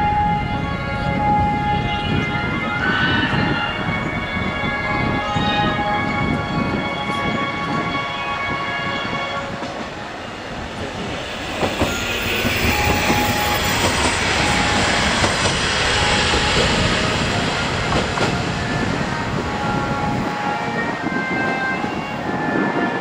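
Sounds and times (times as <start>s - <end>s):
diesel railcar engine running up: 10.7s - 19.6s.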